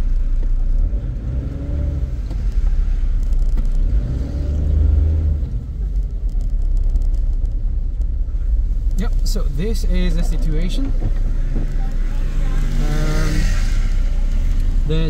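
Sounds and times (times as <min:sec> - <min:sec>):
car interior low rumble: 0:00.0 - 0:15.0
tractor engine revving: 0:10.8 - 0:15.0.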